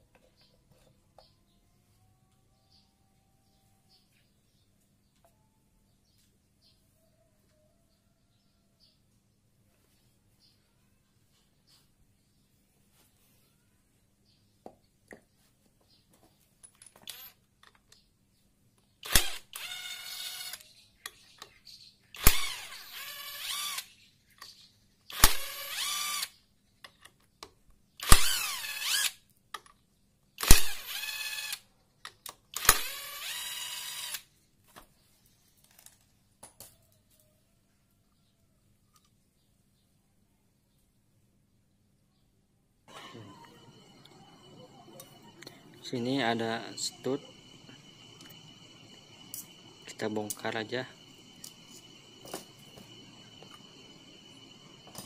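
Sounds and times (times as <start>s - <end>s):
electric driver whining: 42.9s - 55.0s.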